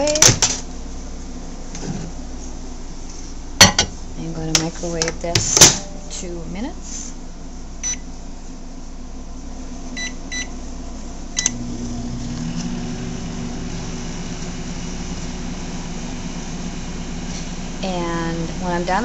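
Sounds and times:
microwave humming: 0.0 - 19.0
microwave keypad beeping: 7.8 - 8.0, 10.0 - 10.5
microwave starting click: 11.4 - 13.0.

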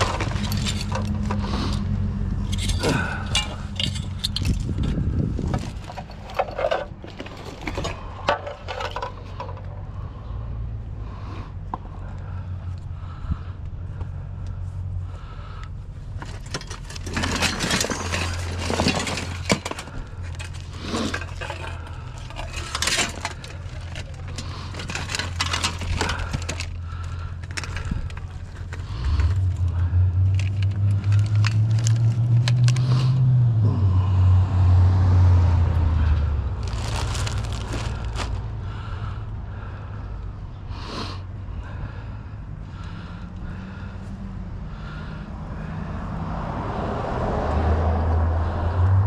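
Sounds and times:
plastic bags rustling: 0.0 - 1.8, 16.2 - 32.9, 36.6 - 38.6
items clicking and scraping: 0.0 - 10.0, 16.1 - 33.2, 36.0 - 38.6
low engine hum: 0.0 - 49.0
vehicle drone: 0.0 - 49.0.

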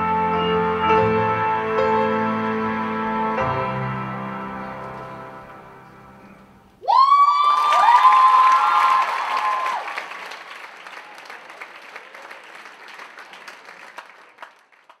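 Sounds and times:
cheering whoops: 6.8 - 10.4
audience clapping: 7.2 - 15.0.

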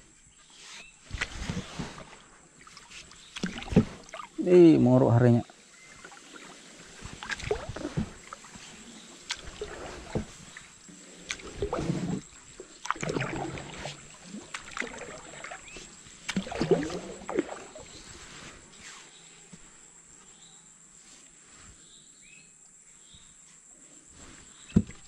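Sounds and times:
paddle splashing in water: 0.8 - 4.5, 5.5 - 18.7.

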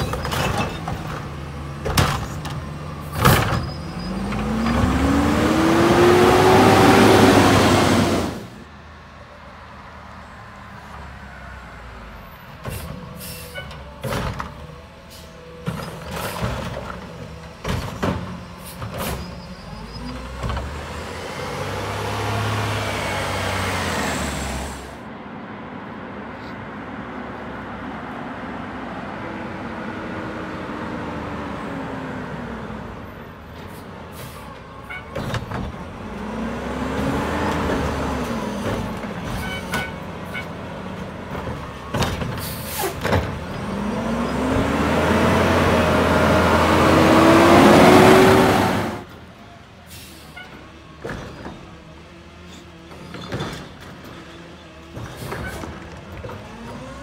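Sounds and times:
garbage truck engine: 0.0 - 9.6, 11.9 - 25.2, 27.9 - 57.0
engine revving: 4.0 - 8.6, 43.2 - 49.1
air brake hisses: 12.7 - 13.7, 42.4 - 43.0, 49.9 - 50.5.

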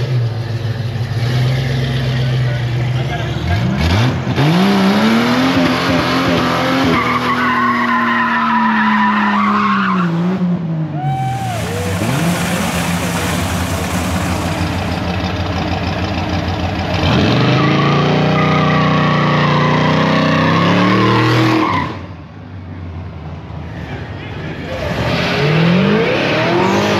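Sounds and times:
car engines revving hard: 0.0 - 15.3, 16.9 - 22.1, 23.9 - 26.9
tyres squealing on wet pavement: 6.7 - 10.1, 11.0 - 15.7, 17.4 - 22.0.

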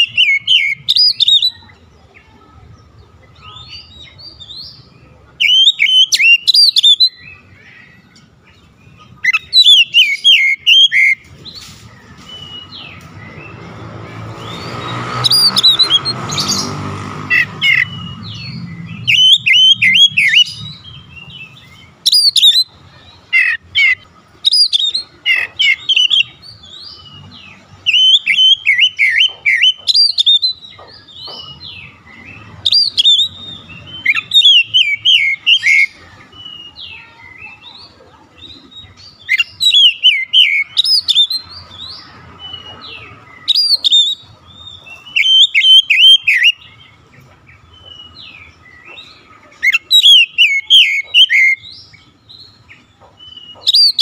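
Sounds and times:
bird singing whistles and chirps: 0.0 - 1.8, 3.4 - 7.8, 9.1 - 13.8, 14.4 - 16.8, 17.4 - 22.8, 23.4 - 37.8, 38.5 - 46.9, 47.7 - 54.0.

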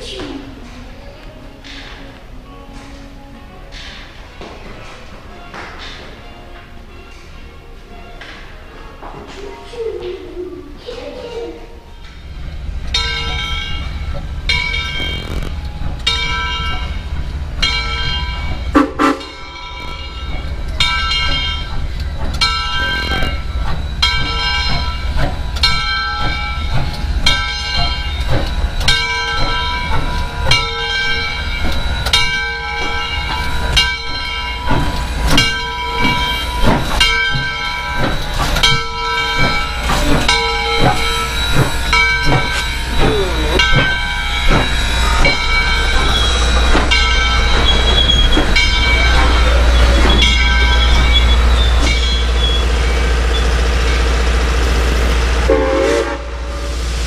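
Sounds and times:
rumble of rolling train cars: 0.0 - 57.0
locomotive bell ringing: 1.6 - 57.0.

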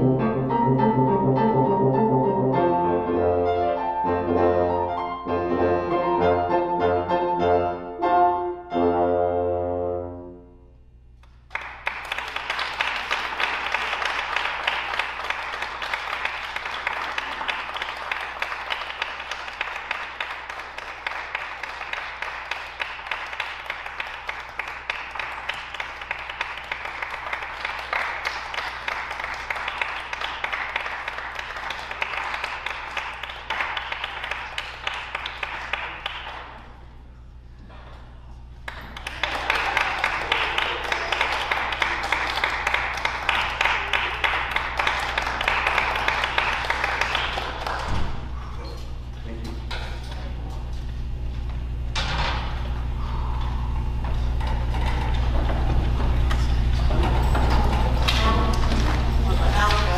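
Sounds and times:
tuba and piano note: 0.0 - 10.6
audience applauding: 11.2 - 37.0, 38.6 - 48.8, 52.2 - 59.9.

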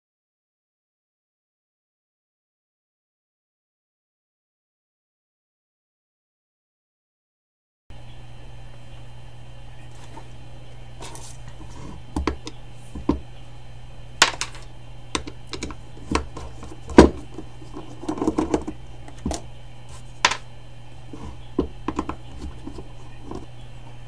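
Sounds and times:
steady low hum: 7.9 - 24.0
handling scuffle: 9.8 - 13.2
screwdriver clicking on metal: 14.2 - 20.4, 21.1 - 23.5.

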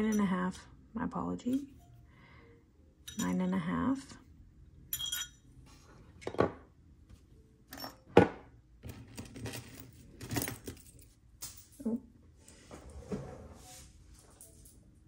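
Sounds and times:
jewelry clinking: 0.0 - 0.5, 3.0 - 3.6, 4.9 - 5.5, 7.7 - 8.2, 8.8 - 12.0.

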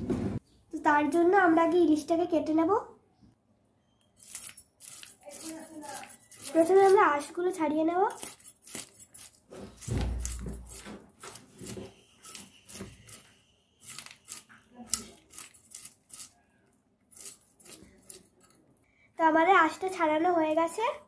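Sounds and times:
knife scraping fish scales: 4.2 - 7.4, 8.1 - 16.5, 17.1 - 18.6.

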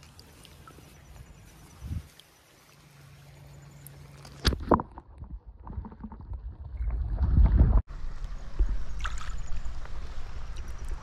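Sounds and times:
wind buffeting microphone: 1.3 - 2.2.

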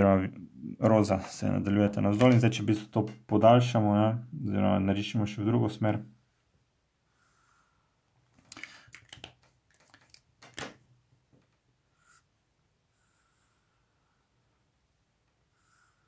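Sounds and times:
marker pens clicking and clacking: 8.4 - 10.8.

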